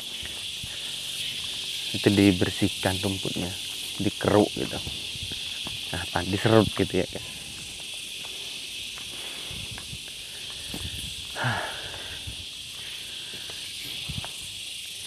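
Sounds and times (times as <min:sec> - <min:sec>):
insects droning: 0:00.0 - 0:15.0
person breathing: 0:00.1 - 0:01.4, 0:08.2 - 0:14.1
soft footsteps: 0:04.8 - 0:05.9, 0:07.4 - 0:11.3.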